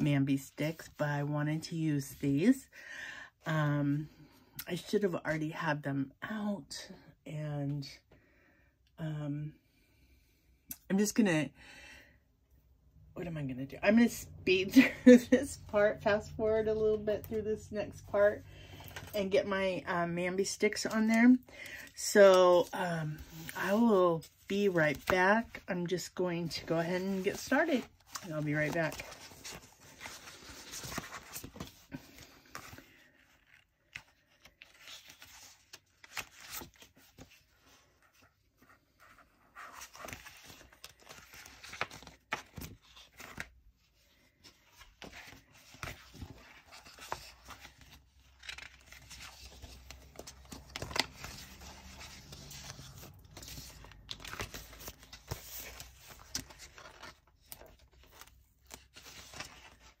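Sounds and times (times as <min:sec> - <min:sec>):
paper rustling and crinkling: 0:26.5 - 1:00.0.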